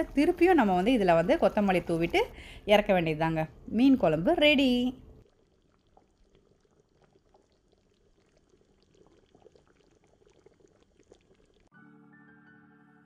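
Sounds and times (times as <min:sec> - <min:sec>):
curry bubbling in a pan: 0:05.2 - 0:11.7.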